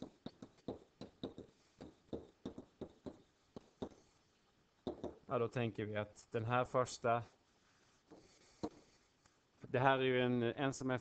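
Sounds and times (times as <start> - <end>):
stylus tapping on writing surface: 0.0 - 4.0, 4.8 - 5.2.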